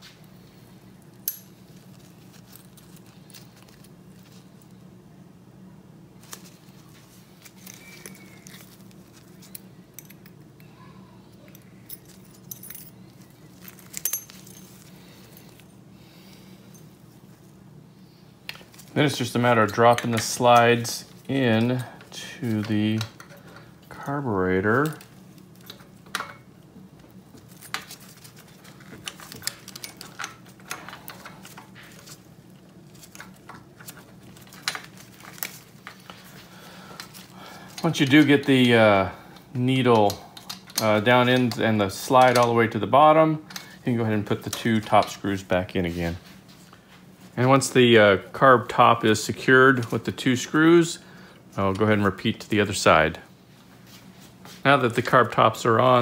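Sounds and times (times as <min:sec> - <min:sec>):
steady low hum: 0:00.0 - 0:56.0
metal parts clicking and tapping: 0:01.2 - 0:03.9, 0:11.4 - 0:14.9, 0:21.5 - 0:24.0, 0:24.8 - 0:26.4, 0:27.3 - 0:32.2, 0:40.0 - 0:42.6
small metal parts clinking: 0:06.2 - 0:10.7, 0:11.3 - 0:15.8, 0:27.3 - 0:36.4.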